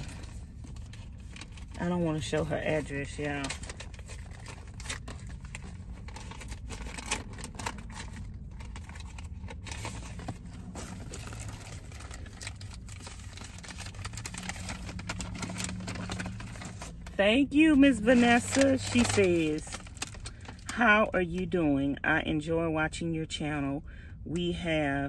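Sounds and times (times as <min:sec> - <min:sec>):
paper rustling and crinkling: 0:00.0 - 0:17.2, 0:17.9 - 0:20.7.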